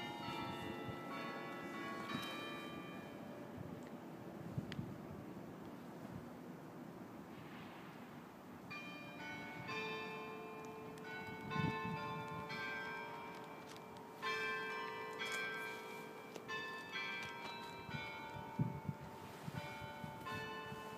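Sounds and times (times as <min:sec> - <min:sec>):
church bells ringing: 0:00.0 - 0:03.7, 0:08.6 - 0:20.9.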